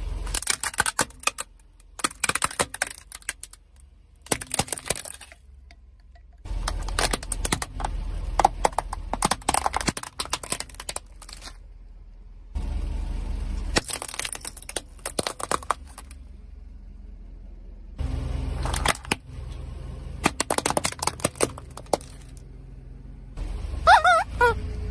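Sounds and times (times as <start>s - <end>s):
objects crunching under a tyre: 0.0s - 5.7s, 6.4s - 11.6s, 13.7s - 16.2s, 18.6s - 19.2s, 20.2s - 22.4s.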